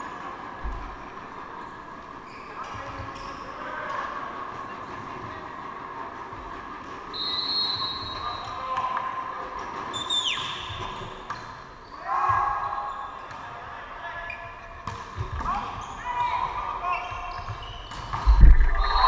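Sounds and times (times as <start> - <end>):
referee's whistle: 7.1 - 8.5, 18.6 - 19.0
shoe squeaks on court floor: 16.9 - 19.0.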